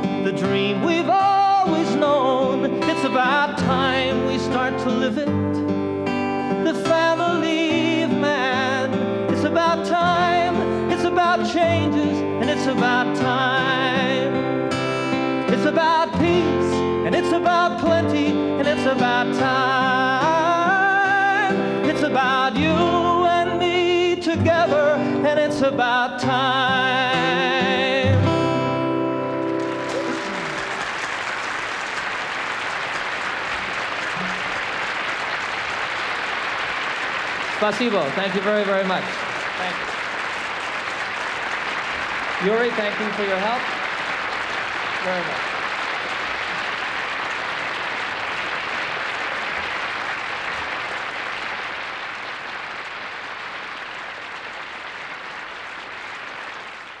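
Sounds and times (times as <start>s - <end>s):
acoustic guitar chord: 0.0s - 31.0s, 33.6s - 34.5s
audience applauding: 29.2s - 57.0s.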